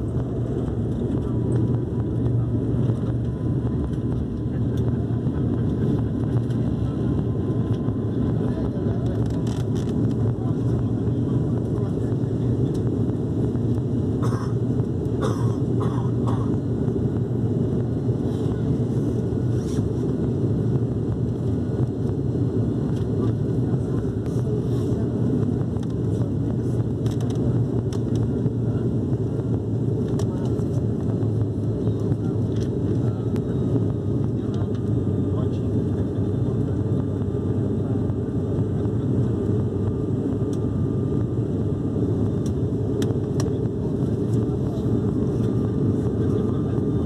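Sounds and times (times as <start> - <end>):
airflow noise: 0.0 - 47.0
turboprop engines droning: 0.0 - 47.0.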